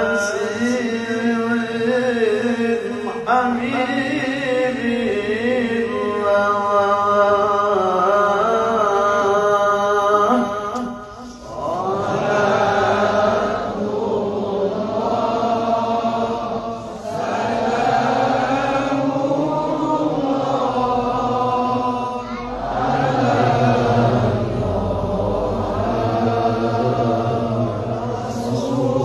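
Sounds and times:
person chanting: 0.0 - 29.0.

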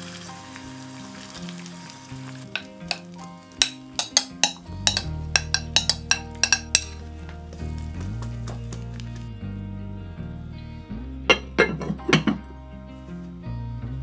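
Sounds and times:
background music: 0.0 - 14.0
utensil clinking against a dish: 2.5 - 7.1, 11.3 - 12.5.

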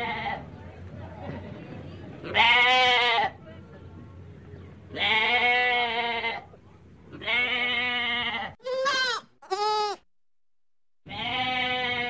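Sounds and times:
goats bleating: 7.2 - 10.0, 11.1 - 12.0.

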